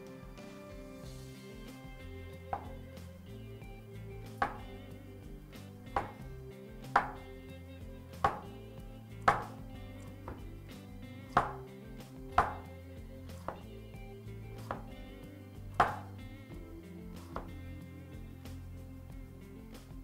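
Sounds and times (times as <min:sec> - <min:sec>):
background music: 0:00.0 - 0:20.0
cleaver chopping on wooden board: 0:02.5 - 0:02.8, 0:04.4 - 0:04.7, 0:06.0 - 0:06.2, 0:06.9 - 0:07.3, 0:08.2 - 0:08.5, 0:09.2 - 0:09.6, 0:10.3 - 0:10.5, 0:11.3 - 0:11.7, 0:12.3 - 0:12.7, 0:13.3 - 0:13.7, 0:14.6 - 0:14.9, 0:15.8 - 0:16.1, 0:17.3 - 0:17.5.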